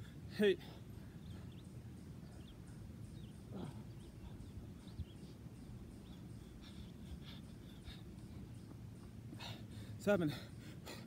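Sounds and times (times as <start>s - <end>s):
small birds chirping: 0.0s - 11.0s
steady low rumble: 0.0s - 11.0s.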